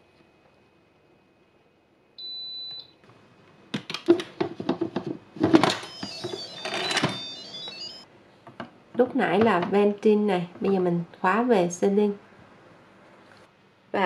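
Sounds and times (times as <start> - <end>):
electronic chime tones: 5.8 - 8.0
short electronic beep: 5.8 - 8.0.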